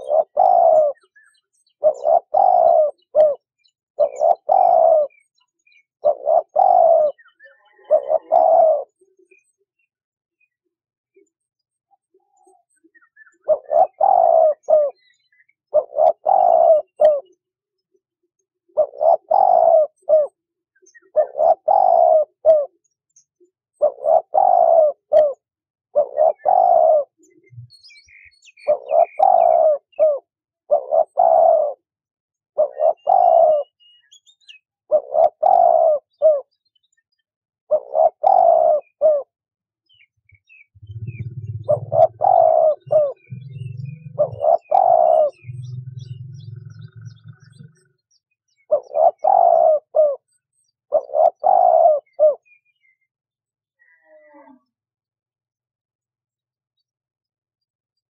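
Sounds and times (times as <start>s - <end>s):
dove cooing: 0.0s - 9.4s, 12.0s - 17.5s, 18.6s - 22.9s, 23.8s - 31.9s, 32.6s - 36.6s, 37.7s - 52.6s.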